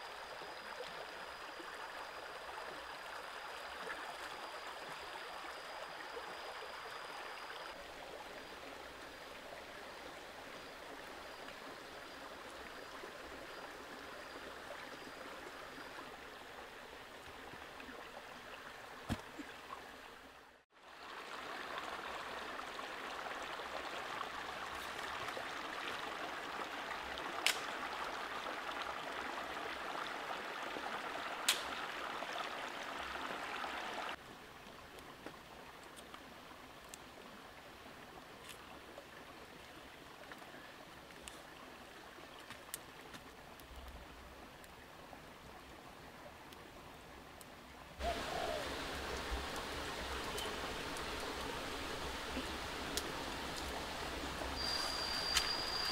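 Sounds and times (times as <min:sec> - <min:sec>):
stream rushing over rocks: 0:20.8 - 0:34.2, 0:47.6 - 0:55.9
wood fire crackling: 0:48.0 - 0:54.6
steady hiss: 0:48.0 - 0:55.9.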